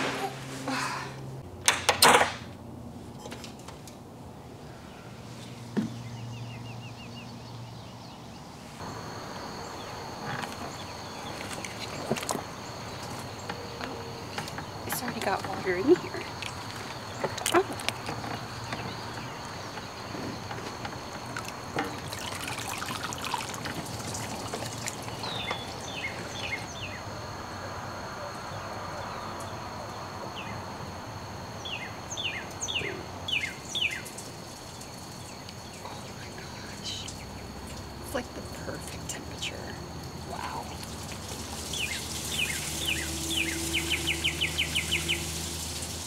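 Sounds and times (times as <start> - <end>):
insects droning: 0.0 - 46.0
water trickling and sloshing: 10.2 - 26.8, 33.6 - 46.0.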